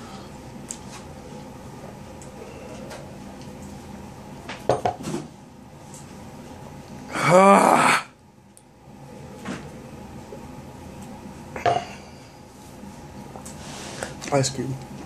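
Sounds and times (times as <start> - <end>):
man's rough pained vocal noise: 7.1 - 8.2.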